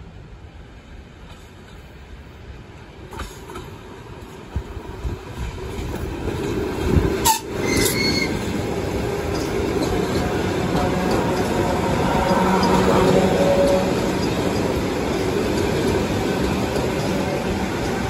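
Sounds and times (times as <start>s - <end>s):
train wheels rumbling on rails: 0.6s - 18.0s
high wheel squeal: 7.2s - 8.6s.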